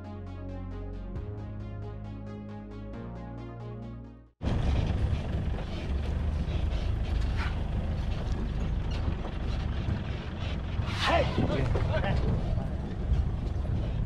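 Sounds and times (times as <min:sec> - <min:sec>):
background music: 0:00.0 - 0:04.4
vehicle engine rumbling: 0:04.4 - 0:14.0.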